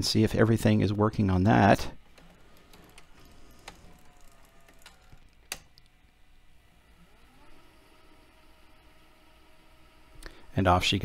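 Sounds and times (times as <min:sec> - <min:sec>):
faint motor whine: 0:00.3 - 0:11.0
tape transport clicks: 0:02.0 - 0:06.2.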